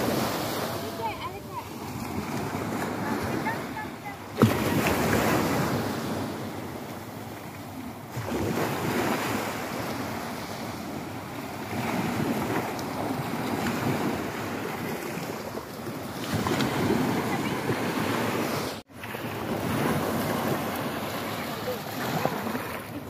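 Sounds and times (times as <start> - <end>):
sea waves washing up beach: 0.0 - 23.0.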